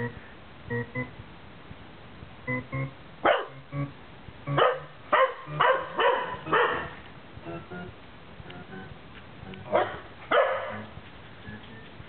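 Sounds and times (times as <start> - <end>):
short pitched tones from device: 2.5 - 4.8
dog barking: 3.2 - 3.6, 4.5 - 7.0, 9.7 - 10.9.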